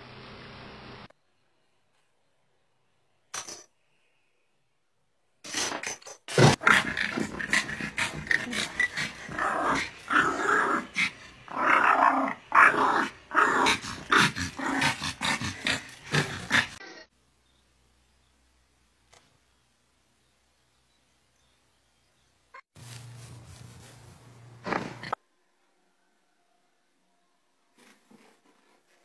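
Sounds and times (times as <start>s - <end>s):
small dog growling: 6.4s - 16.8s.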